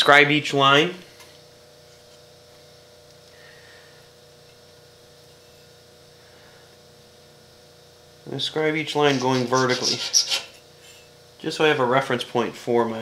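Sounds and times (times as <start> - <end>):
steady low hum: 0.0 - 13.0
scribe scratching metal: 9.0 - 11.1.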